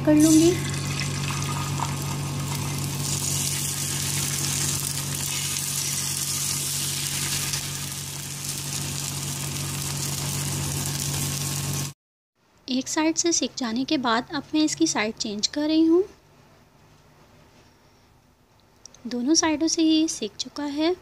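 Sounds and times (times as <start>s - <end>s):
constant low hum: 0.0s - 11.8s
egg sizzling on hot pan: 0.2s - 12.0s.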